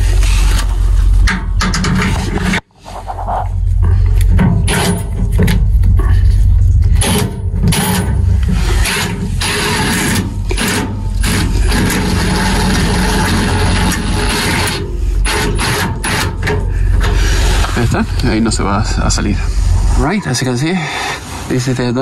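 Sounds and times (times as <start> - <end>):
impact driver running: 7.0 - 18.0.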